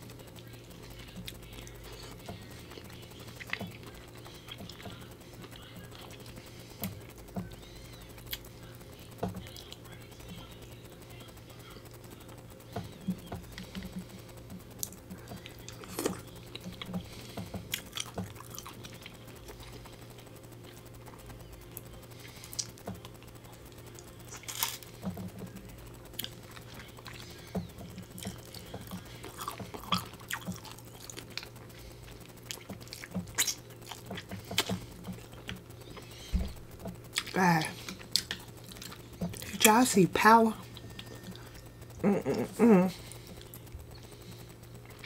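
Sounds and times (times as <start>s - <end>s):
chewing and wet mouth sounds: 0.0s - 45.0s
faint low hum: 0.0s - 45.0s
sharp clicks and crackles: 0.1s - 39.8s.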